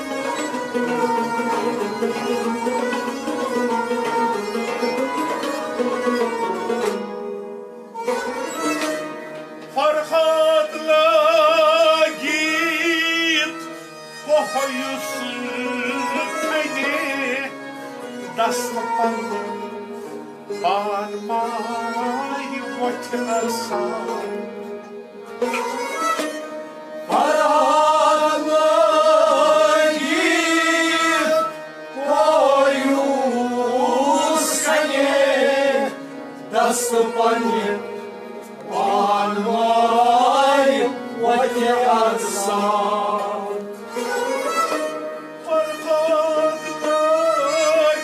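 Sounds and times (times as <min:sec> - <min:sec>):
bowed sarangi: 0:00.0 - 0:48.0
harmonium chords: 0:00.0 - 0:48.0
man singing: 0:09.8 - 0:19.8, 0:20.5 - 0:24.6, 0:27.1 - 0:38.0, 0:38.7 - 0:43.8, 0:45.4 - 0:48.0.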